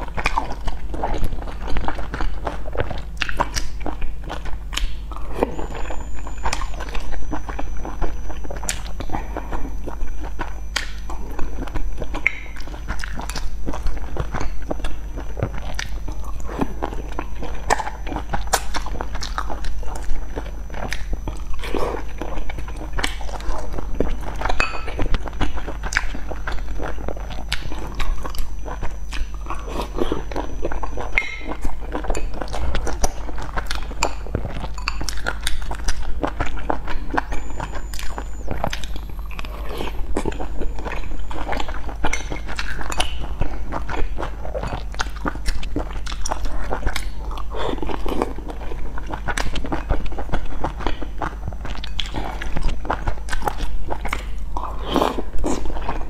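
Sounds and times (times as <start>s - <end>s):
person chewing dumplings: 0.0s - 56.0s
low hum: 4.4s - 49.1s.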